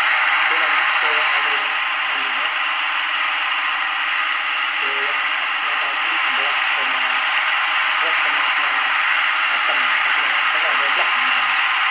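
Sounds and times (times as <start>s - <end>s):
loud steady hiss: 0.0s - 11.9s
man speaking: 0.5s - 2.5s, 4.8s - 7.2s, 8.0s - 8.9s, 9.5s - 11.4s.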